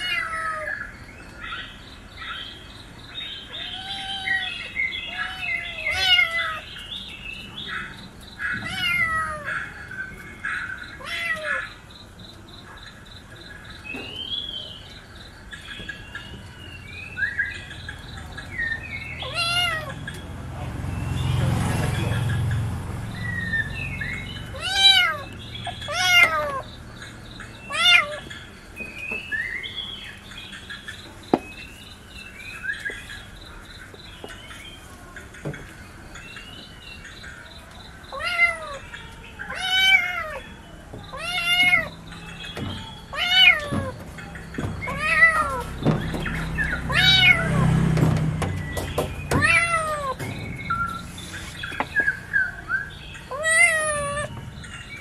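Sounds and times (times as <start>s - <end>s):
kitten meowing: 3.5s - 6.6s, 19.2s - 20.0s, 24.5s - 25.3s, 25.9s - 26.7s, 27.7s - 28.2s, 38.1s - 38.8s, 39.5s - 40.4s, 41.1s - 41.9s, 43.1s - 43.9s, 44.9s - 45.6s, 46.9s - 47.6s, 49.4s - 50.2s, 53.3s - 54.3s.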